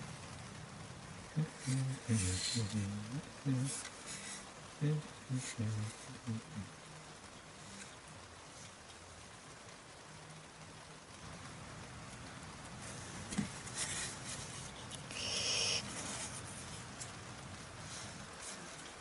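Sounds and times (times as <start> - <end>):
outdoor background hiss: 0.0 - 19.0
scraping rustle: 12.8 - 17.2.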